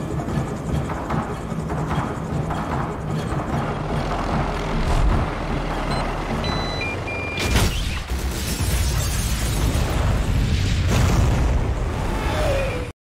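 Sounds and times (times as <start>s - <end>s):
helicopter rumble: 0.0s - 8.3s
short electronic beeps: 5.7s - 7.8s
explosion: 7.4s - 12.4s.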